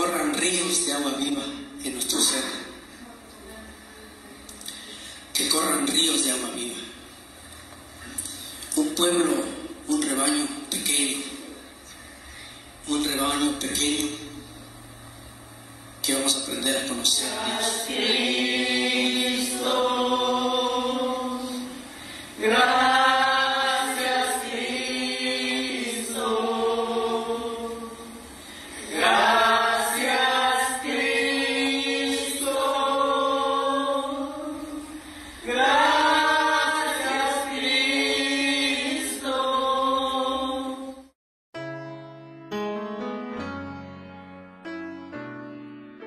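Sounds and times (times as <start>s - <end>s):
voices singing a hymn: 16.7s - 41.1s.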